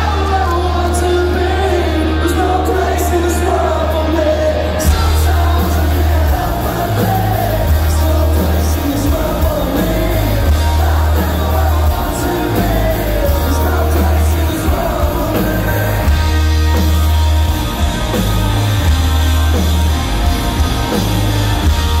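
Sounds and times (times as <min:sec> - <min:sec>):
person singing: 0:00.0 - 0:16.5
live punk rock band: 0:00.0 - 0:22.0.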